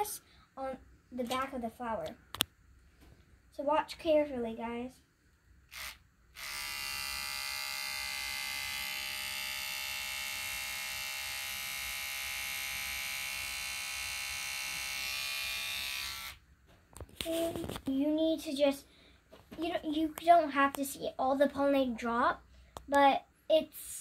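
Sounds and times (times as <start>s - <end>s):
electric toothbrush buzzing: 5.7s - 16.4s.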